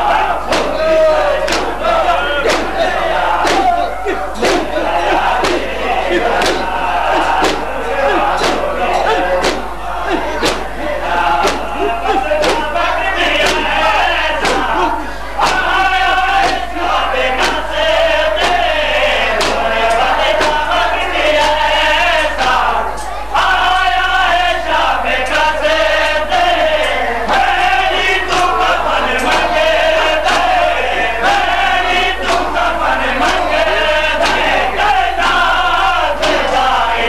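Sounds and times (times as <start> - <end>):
crowd of men chanting: 0.0 - 37.0
hands slapping on chests: 0.5 - 15.8, 16.4 - 16.7, 17.4 - 17.7, 18.4 - 18.7, 19.4 - 20.6, 28.3 - 29.6, 30.2 - 30.6, 32.2 - 32.6, 33.2 - 34.6.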